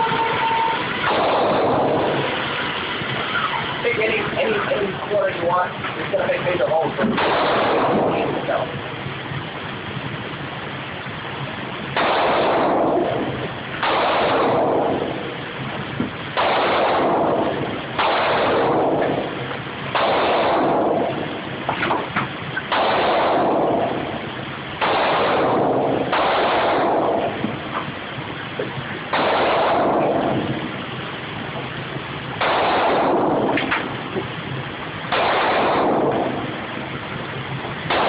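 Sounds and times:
pistol shots ringing indoors: 0:01.0 - 0:02.2, 0:07.2 - 0:08.3, 0:12.0 - 0:13.2, 0:13.8 - 0:15.0, 0:16.4 - 0:19.2, 0:19.9 - 0:21.3, 0:22.6 - 0:24.0, 0:24.8 - 0:27.5, 0:29.1 - 0:30.5, 0:32.4 - 0:33.9, 0:35.1 - 0:36.5.

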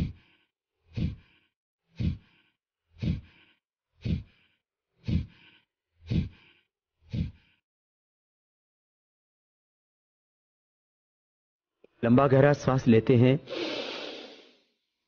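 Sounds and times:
forceful nasal exhalations: 0:00.0 - 0:07.6, 0:13.5 - 0:14.7.

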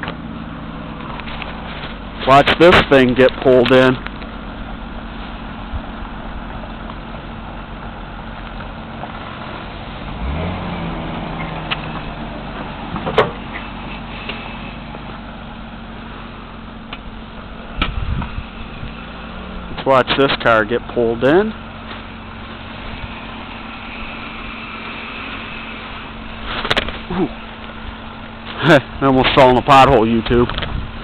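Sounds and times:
car engine running: 0:00.0 - 0:31.0
low thump: 0:17.8 - 0:18.4.

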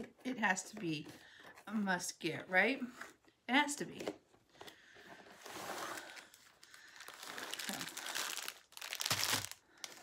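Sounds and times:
plastic packaging crinkling: 0:05.5 - 0:10.0.

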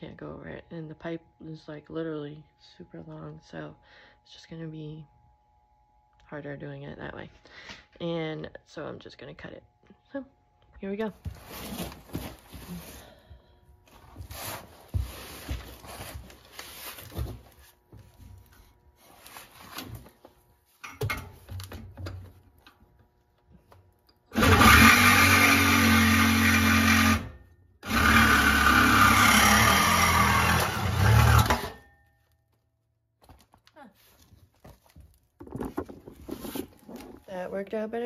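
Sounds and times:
reciprocating saw cutting metal pipe: 0:24.3 - 0:31.9
faint handling knocks and scrapes: 0:33.2 - 0:37.3.

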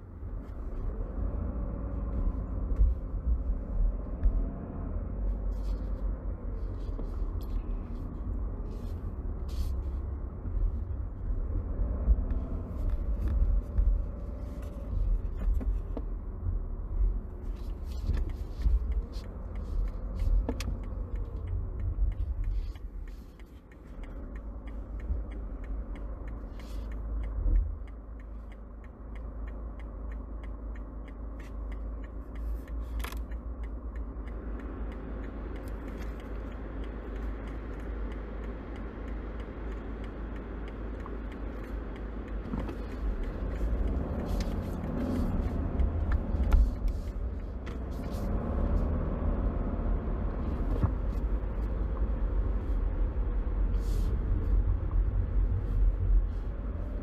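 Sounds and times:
diesel engine rumble inside car: 0:00.0 - 0:57.0
faint clicks: 0:11.9 - 0:57.0.

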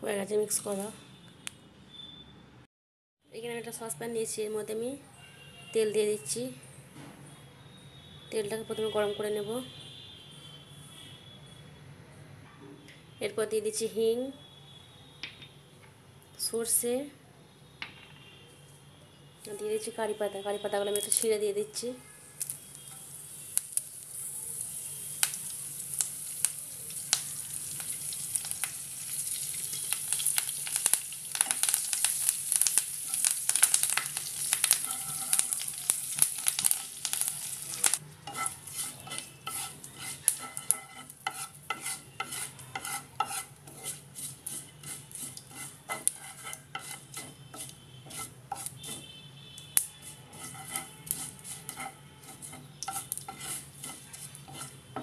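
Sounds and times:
spices sizzling in hot oil: 0:20.4 - 0:49.0, 0:49.6 - 0:55.0
wooden spatula scraping pan: 0:34.6 - 0:49.1, 0:50.0 - 0:55.0.

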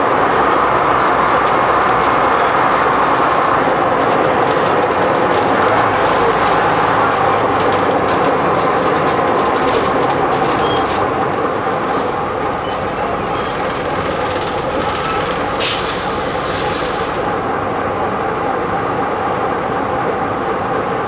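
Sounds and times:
bus engine drone: 0:00.0 - 0:21.0
short air hisses: 0:15.6 - 0:17.2.

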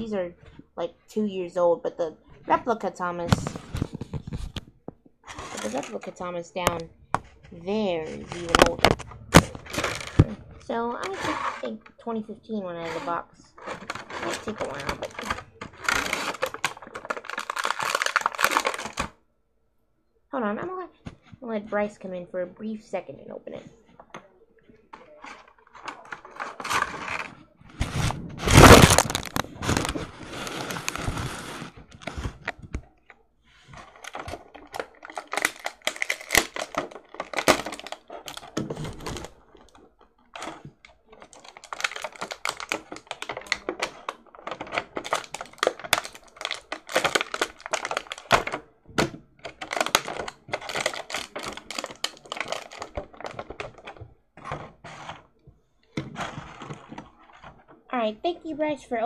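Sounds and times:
packaging rustling and tearing: 0:05.2 - 0:11.7, 0:12.8 - 0:19.2, 0:25.0 - 0:32.9, 0:33.6 - 0:55.3.

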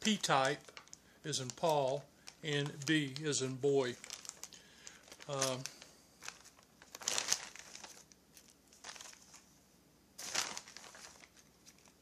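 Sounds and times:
plastic bags crinkling: 0:00.0 - 0:09.5, 0:10.2 - 0:12.0.

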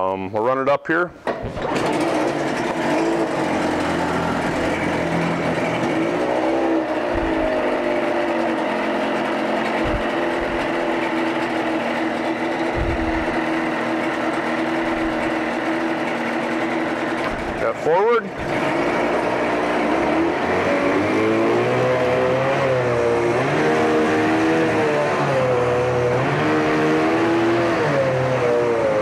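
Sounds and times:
outboard engine idling: 0:01.4 - 0:21.5.

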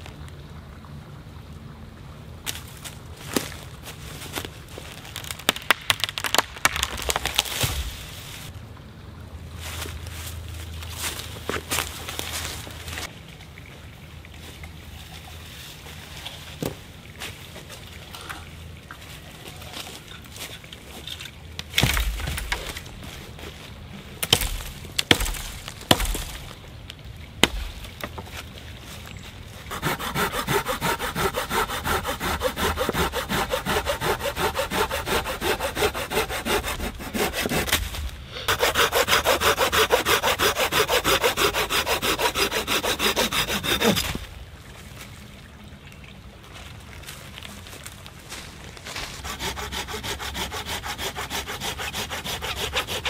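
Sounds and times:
sharp wooden knocks: 0:24.2 - 0:26.4
hand saw cutting branch: 0:24.2 - 0:26.6, 0:27.4 - 0:27.7, 0:29.7 - 0:44.3, 0:48.9 - 0:53.0.

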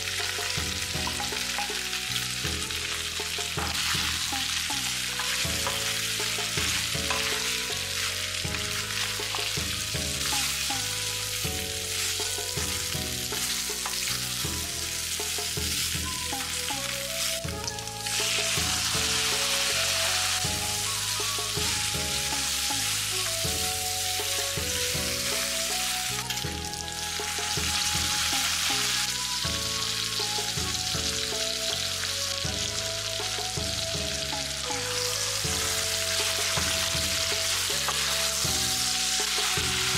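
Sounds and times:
food sizzling in hot oil: 0:00.0 - 0:39.9
wooden spatula scraping wok: 0:02.6 - 0:10.7, 0:34.4 - 0:39.9.

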